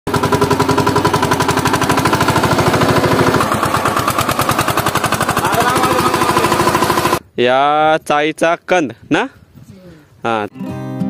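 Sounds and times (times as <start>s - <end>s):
diesel engine chugging: 0.1s - 7.2s.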